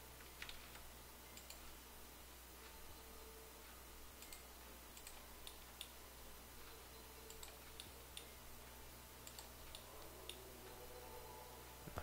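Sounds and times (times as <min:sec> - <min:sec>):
low steady hum: 0:00.0 - 0:12.0
computer mouse clicks: 0:00.2 - 0:01.7, 0:04.2 - 0:06.0, 0:07.2 - 0:08.3, 0:09.2 - 0:10.4.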